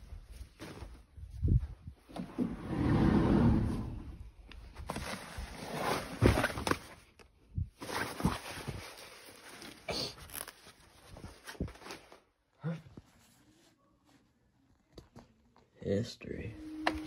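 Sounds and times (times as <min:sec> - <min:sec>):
clothes rustling: 0:00.0 - 0:02.1.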